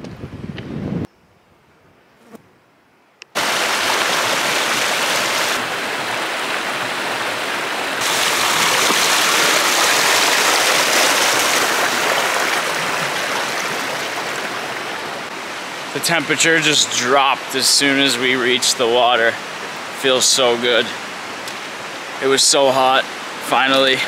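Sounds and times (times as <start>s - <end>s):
stream running over stones: 3.4s - 24.0s.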